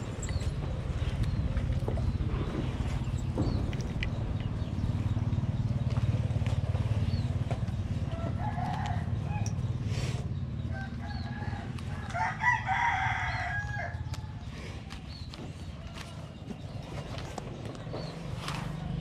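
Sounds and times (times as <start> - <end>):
steady low rumble: 0.0 - 19.0
rooster crowing: 8.1 - 9.5, 10.7 - 14.4.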